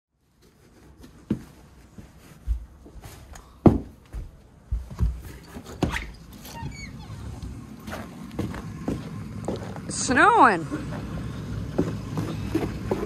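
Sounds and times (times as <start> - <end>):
boots thumping on hard floor: 2.4 - 6.0, 7.9 - 9.8
boot squeaking: 4.8 - 9.9, 10.9 - 13.0.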